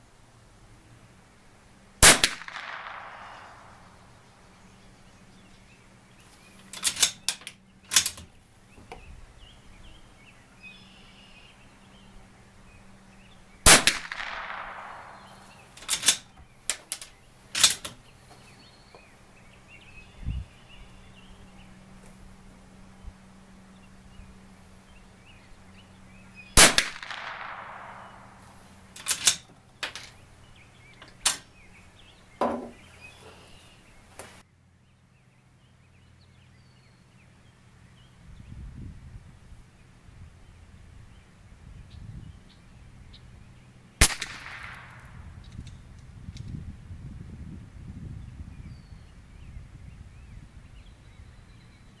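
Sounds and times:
rifle shots with echo: 0:02.0 - 0:04.1, 0:13.6 - 0:16.3, 0:26.6 - 0:28.5, 0:44.0 - 0:45.4.

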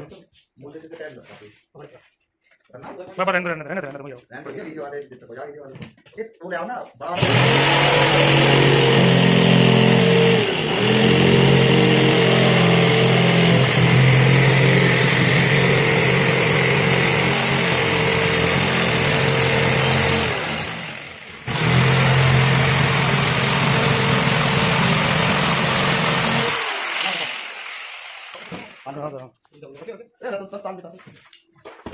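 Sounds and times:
electric jigsaw cutting board: 0:07.2 - 0:29.0.

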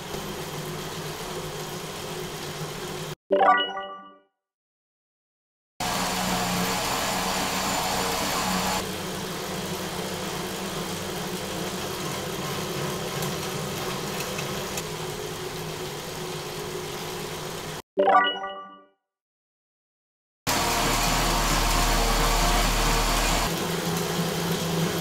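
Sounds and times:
bike tyre whirring on rollers: 0:05.8 - 0:17.7, 0:20.5 - 0:25.0.

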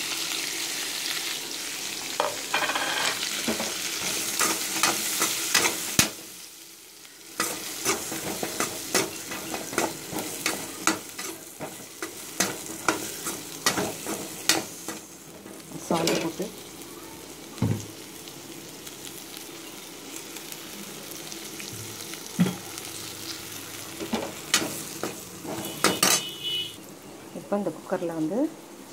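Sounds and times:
vegetables sizzling in hot oil: 0:00.0 - 0:28.9
metal spoon scraping a pan: 0:24.1 - 0:26.4.

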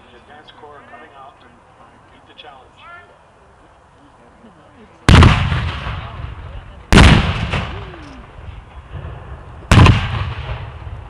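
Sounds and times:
gunshot blasts: 0:05.1 - 0:08.0, 0:09.0 - 0:11.0.

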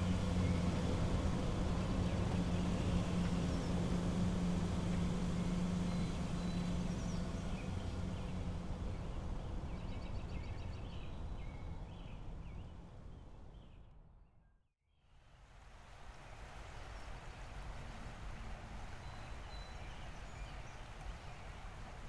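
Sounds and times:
car engine driving away: 0:00.0 - 0:11.0
birds chirping: 0:01.7 - 0:13.8.

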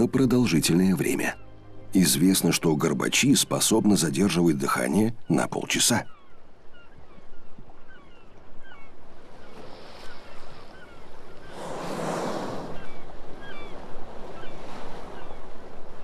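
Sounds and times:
sea noise: 0:00.0 - 0:16.0
wind: 0:00.0 - 0:16.0
faint chirping calls: 0:03.2 - 0:15.5
whale blow breathy whoosh: 0:11.4 - 0:13.0.

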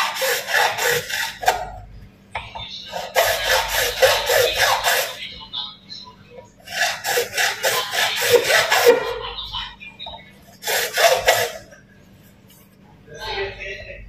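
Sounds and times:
hand tool scraping plastic pipe: 0:00.0 - 0:01.8, 0:02.9 - 0:05.2, 0:06.6 - 0:09.2, 0:10.6 - 0:11.8.

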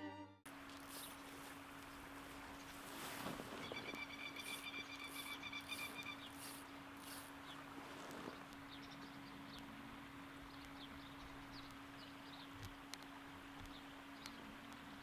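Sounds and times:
steady low hum: 0:00.0 - 0:15.0
high bird chirps: 0:03.6 - 0:06.6.

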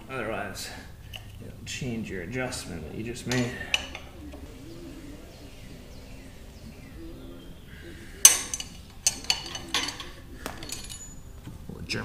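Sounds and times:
wrench clanking against metal: 0:03.3 - 0:04.1, 0:08.2 - 0:11.4.

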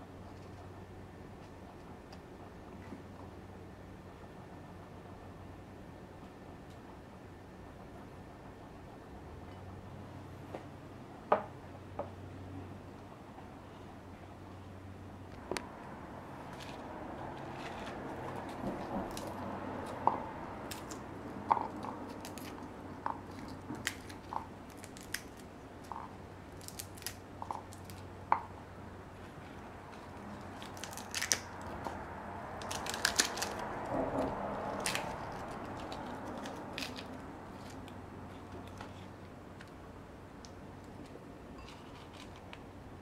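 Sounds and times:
low steady hum: 0:00.0 - 0:43.0
crisp crunching: 0:20.6 - 0:28.1, 0:29.2 - 0:32.0, 0:32.6 - 0:33.8, 0:34.5 - 0:39.1.

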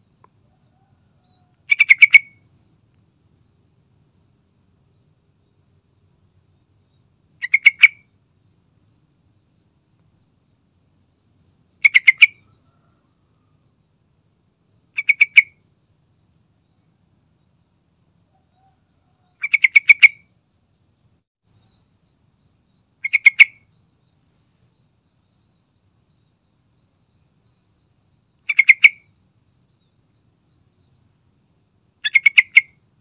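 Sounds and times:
bulbul calling: 0:00.2 - 0:02.6, 0:06.8 - 0:08.8, 0:11.2 - 0:13.0, 0:14.8 - 0:15.6, 0:18.3 - 0:20.4, 0:22.7 - 0:24.1, 0:27.0 - 0:29.2, 0:32.0 - 0:33.0.

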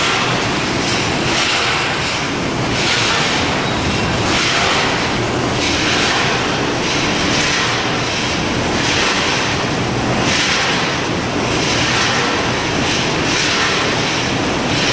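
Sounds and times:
packaging machine din: 0:02.0 - 0:07.5.

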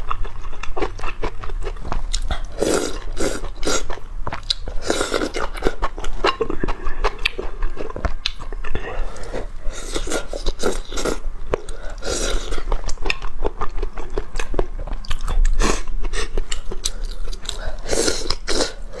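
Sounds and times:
chewing: 0:00.0 - 0:19.0.

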